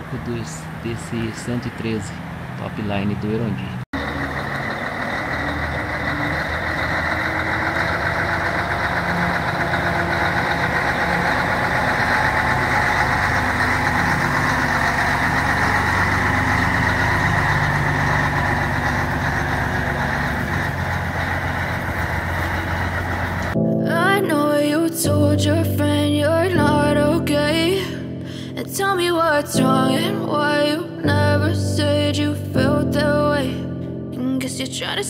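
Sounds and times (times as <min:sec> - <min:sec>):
diesel truck engine passing: 0:00.0 - 0:24.8.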